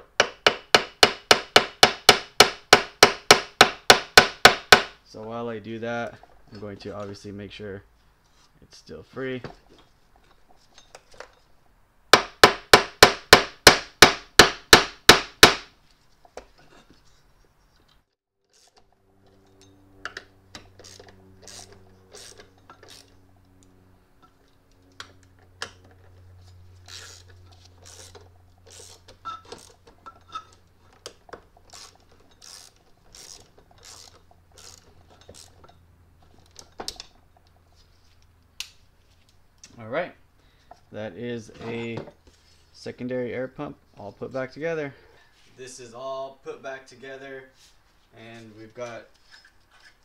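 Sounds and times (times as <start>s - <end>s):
ratchet clicking: 18.5s - 18.8s, 20.5s - 23.2s, 26.8s - 29.8s, 31.6s - 35.7s.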